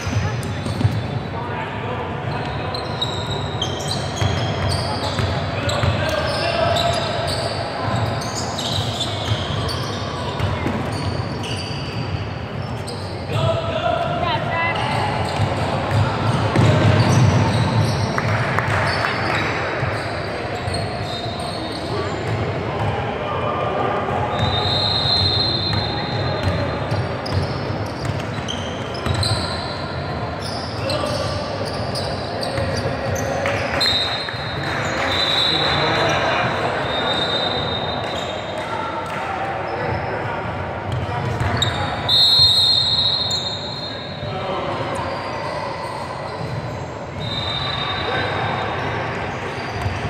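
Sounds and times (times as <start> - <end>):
sneakers squeaking: 0.0 - 1.5, 2.1 - 23.1, 24.0 - 50.0
voices in a gymnasium: 0.0 - 50.0
referee's whistle blast: 24.3 - 26.4, 35.0 - 36.0, 41.6 - 44.2, 47.2 - 48.8.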